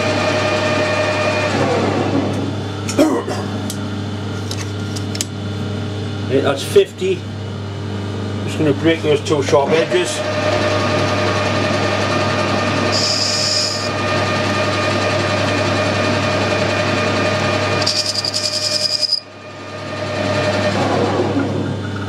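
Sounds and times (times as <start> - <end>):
metal lathe running: 8.6 - 21.1
cutting tool squealing: 12.9 - 14.0, 17.8 - 19.3.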